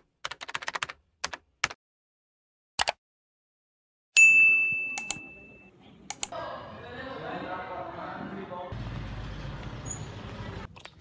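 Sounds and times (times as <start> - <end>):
single bell ding: 4.2 - 5.7.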